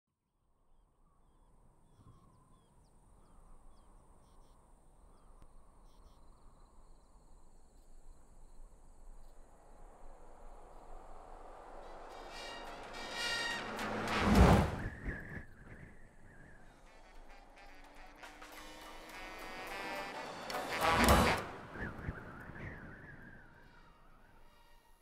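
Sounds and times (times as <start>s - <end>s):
vehicle approaching: 9.9s - 14.9s.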